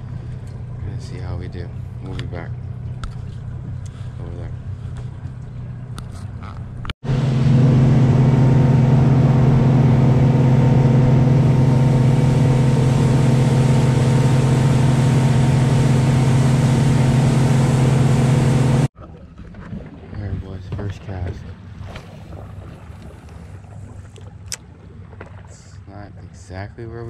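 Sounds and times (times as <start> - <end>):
low engine rumble: 0.0 - 18.9
motorboat engine drone: 0.0 - 19.0, 21.1 - 27.0.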